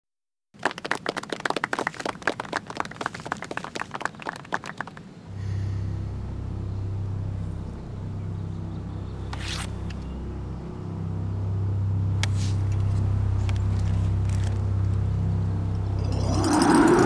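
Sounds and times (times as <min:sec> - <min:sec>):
scattered applause: 0:00.6 - 0:05.1
low musical drone: 0:05.3 - 0:17.0.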